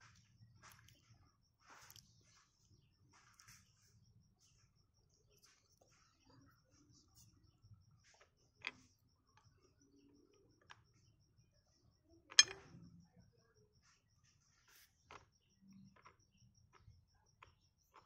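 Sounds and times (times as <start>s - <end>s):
sharp clicks or knocks: 12.3s - 12.7s.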